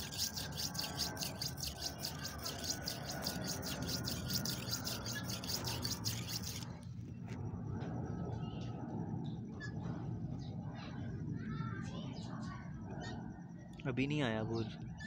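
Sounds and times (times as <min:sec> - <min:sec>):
knife scraping on sharpening stone: 0:00.0 - 0:06.7.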